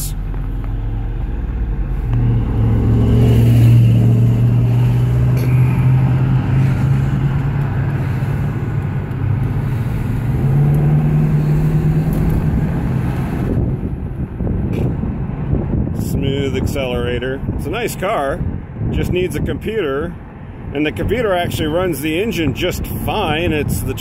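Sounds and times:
car engine accelerating: 0.0 - 15.8
wind and road noise: 0.0 - 24.0.

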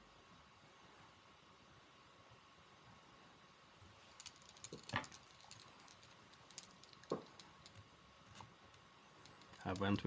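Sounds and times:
small tools clicking: 4.2 - 10.0.

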